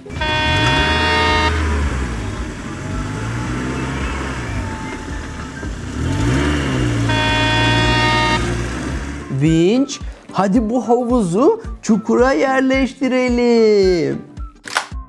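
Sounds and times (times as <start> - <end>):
horn blast: 0.0 - 9.4
truck engine revving: 0.0 - 9.4.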